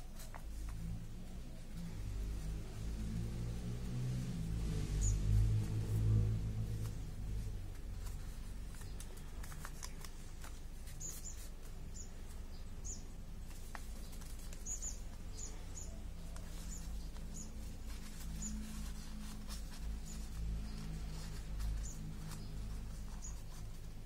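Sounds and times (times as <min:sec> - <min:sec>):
small bird chirping: 0:04.6 - 0:24.0
paper crinkling: 0:05.4 - 0:24.0.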